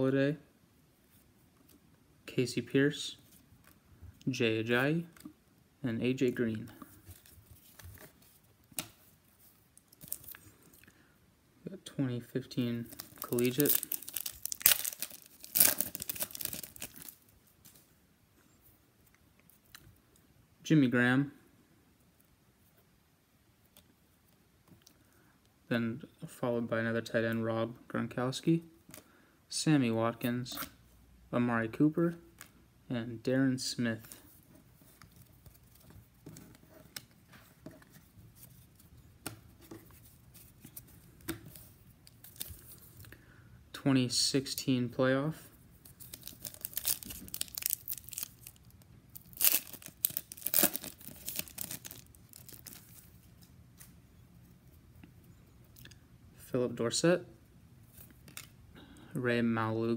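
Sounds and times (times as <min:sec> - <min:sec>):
foil wrapper tearing and crinkling: 0:12.9 - 0:17.3, 0:46.0 - 0:53.0.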